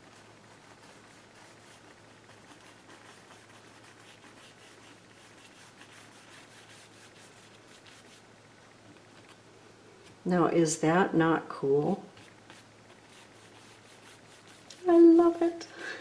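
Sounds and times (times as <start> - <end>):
paintbrush strokes on canvas: 0.0 - 8.2, 11.6 - 15.8.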